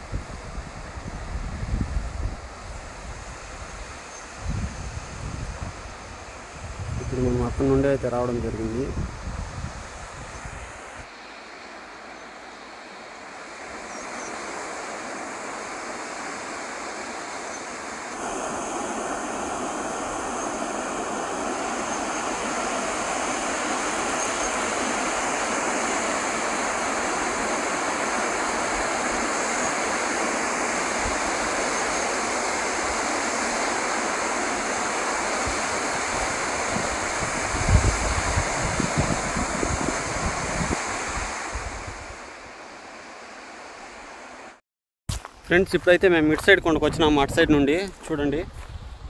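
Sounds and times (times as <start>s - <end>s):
wind gusts on microphone: 0.0s - 11.1s, 13.5s - 44.3s, 45.5s - 49.0s
waterfall rushing: 10.7s - 42.5s.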